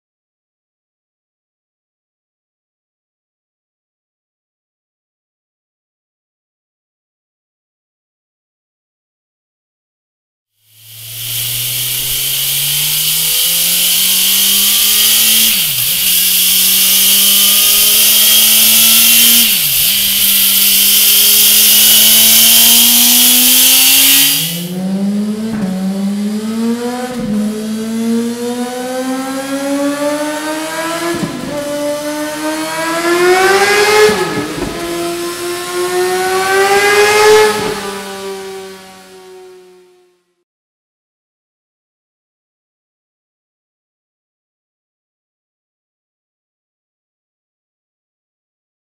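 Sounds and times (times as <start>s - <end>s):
strong hiss: 10.6s - 24.7s
motorcycle engine revving hard: 10.6s - 40.2s.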